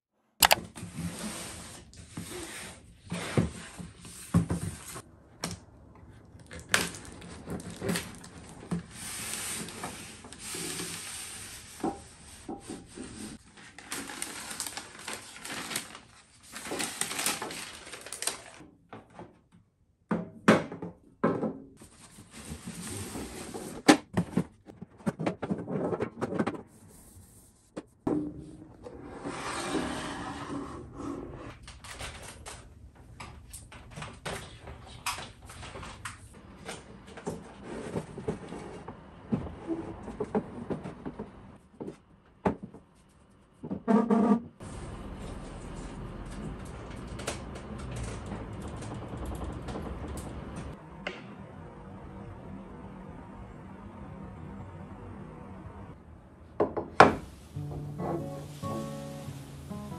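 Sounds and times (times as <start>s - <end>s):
paper wrapping being pulled out: 13.4s - 18.6s.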